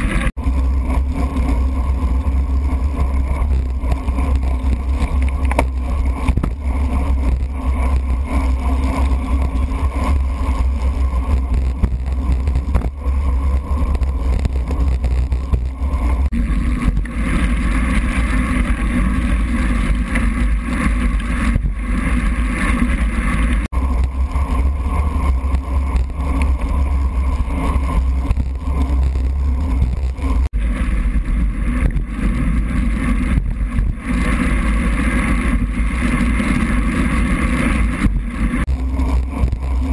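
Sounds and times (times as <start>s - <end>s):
muffled wind rumble: 0.0s - 39.9s
wet road noise: 0.0s - 39.9s.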